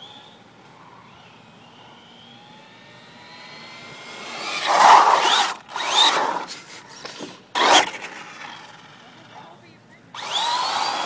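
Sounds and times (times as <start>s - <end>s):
electric motor whine: 0.0s - 6.5s, 7.6s - 11.0s
rc car rushing and scraping: 2.3s - 9.6s, 10.2s - 11.0s.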